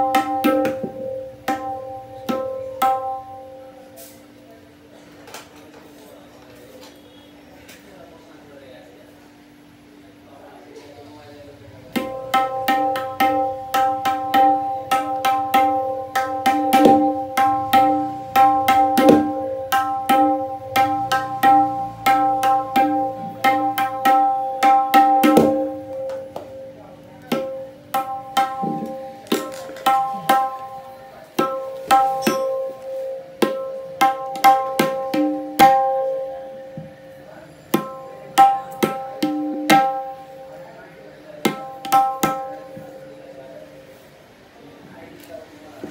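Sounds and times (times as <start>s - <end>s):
tabla strokes ringing: 0.0s - 4.0s, 11.9s - 40.6s, 41.4s - 43.1s.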